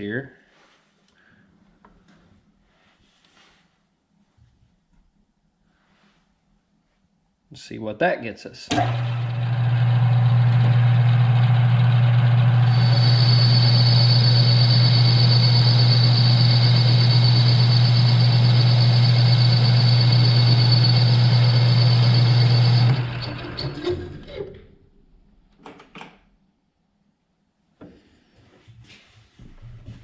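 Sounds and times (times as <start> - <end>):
high whine of tool cutting: 8.7 - 24.7
machine spinning down: 8.7 - 24.8
lathe motor humming: 8.8 - 24.7.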